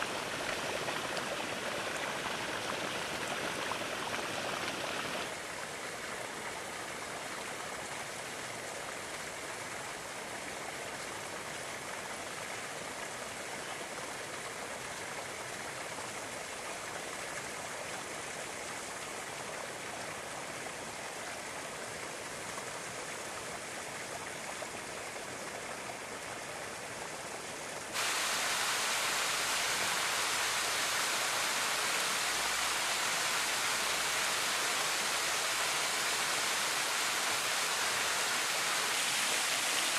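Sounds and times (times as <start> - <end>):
water running in shallow pool: 0.0 - 10.2, 24.3 - 39.9.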